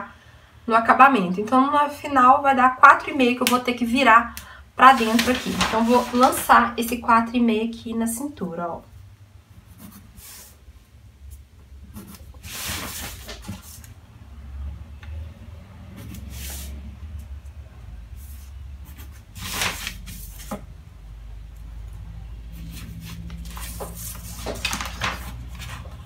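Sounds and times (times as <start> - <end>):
paper rustling: 4.8 - 7.0, 12.0 - 13.9, 19.4 - 20.6, 22.6 - 26.0.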